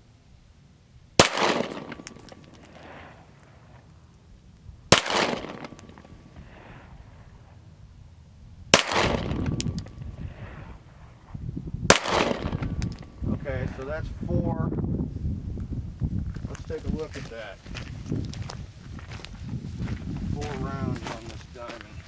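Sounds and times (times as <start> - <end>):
handgun shots echoing: 1.2 - 3.0, 4.9 - 6.2, 8.8 - 10.0, 11.9 - 13.2.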